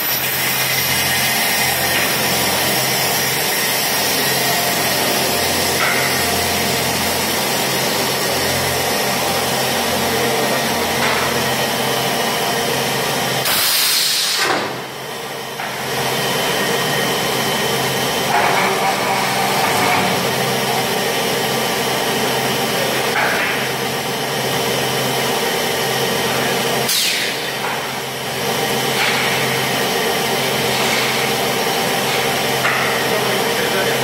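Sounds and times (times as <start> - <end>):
machine mechanical hum with hiss: 0.0 - 34.0.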